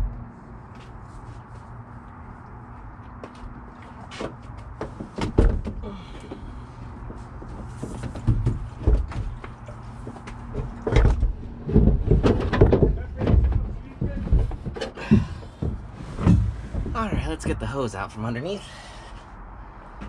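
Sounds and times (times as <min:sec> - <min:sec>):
plastic tank knocking and scraping: 0:04.0 - 0:05.8, 0:07.0 - 0:17.6.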